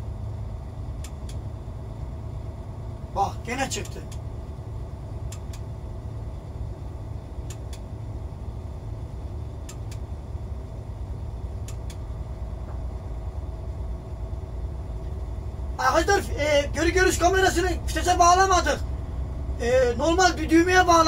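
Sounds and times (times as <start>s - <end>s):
engine and road rumble: 0.0s - 21.0s
faint clicks: 1.0s - 1.4s, 5.3s - 5.7s, 7.4s - 7.9s, 9.6s - 10.1s, 11.6s - 12.1s.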